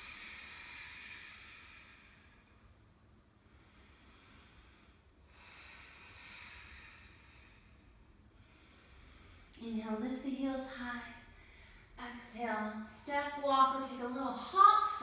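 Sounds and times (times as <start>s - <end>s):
slow throat breathing: 0.0s - 9.6s.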